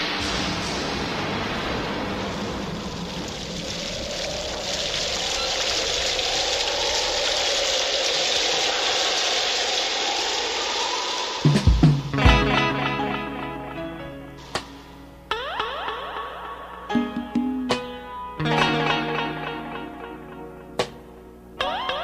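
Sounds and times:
heavy rain: 0.0s - 13.8s.

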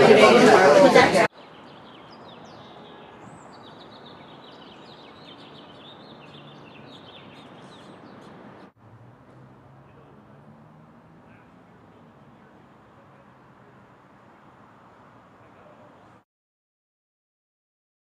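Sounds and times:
small birds chirping: 1.3s - 8.8s.

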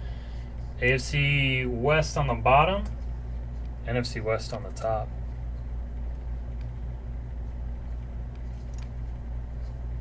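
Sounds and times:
low background hum: 0.0s - 10.0s.

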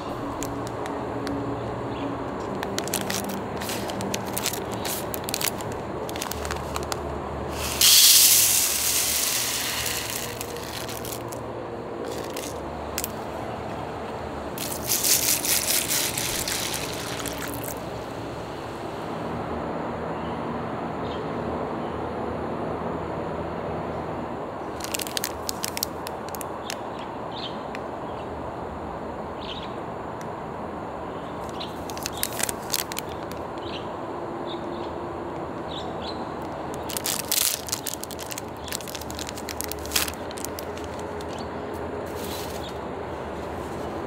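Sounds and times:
outdoor background hum: 0.0s - 44.0s
plastic wrapper crinkling: 0.1s - 1.4s, 2.3s - 11.4s, 12.0s - 13.2s, 14.6s - 17.8s, 24.7s - 26.8s, 31.4s - 33.4s, 36.4s - 41.4s.

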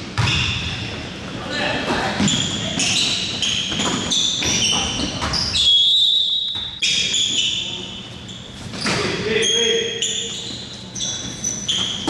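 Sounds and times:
basketball bouncing: 0.2s - 0.7s
shoes squeaking on gym floor: 1.5s - 12.0s.

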